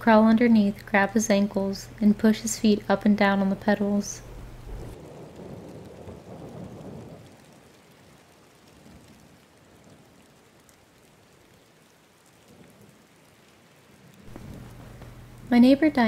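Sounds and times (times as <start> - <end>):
steady rain: 0.0 - 16.0
low rumble of thunder: 4.2 - 11.5, 12.4 - 16.0.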